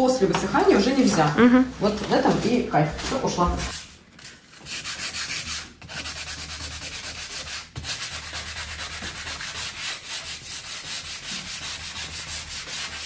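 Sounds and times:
sandpaper rubbing on wood: 3.2s - 13.0s.

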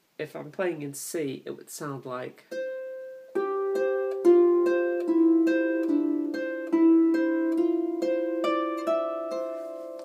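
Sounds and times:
harp plucked notes: 2.5s - 10.0s.

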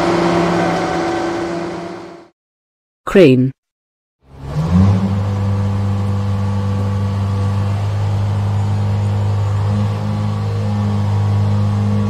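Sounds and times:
crane engine humming: 0.0s - 2.3s, 4.3s - 12.0s.

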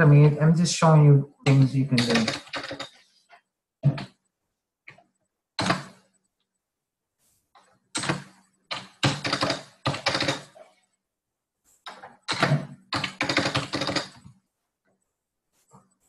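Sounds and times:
computer keyboard typing: 1.6s - 3.0s, 8.0s - 10.6s, 11.9s - 14.2s.

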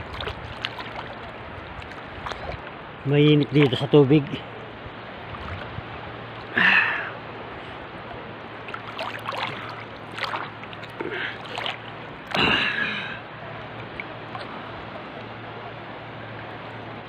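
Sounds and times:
seawater sloshing and lapping: 0.0s - 15.2s
water bursts: 8.5s - 13.1s.

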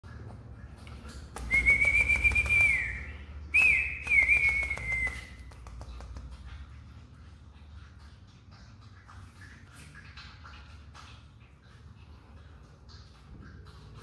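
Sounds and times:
person whistling: 1.4s - 5.4s
quick clicks: 3.6s - 6.3s.

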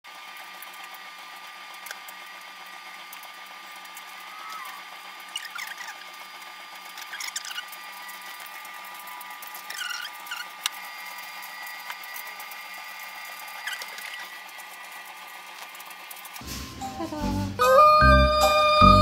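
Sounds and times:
steady background hum: 0.1s - 19.0s
knife squeaking through pumpkin: 4.2s - 6.2s, 6.9s - 7.9s, 9.6s - 10.6s, 13.5s - 14.4s.

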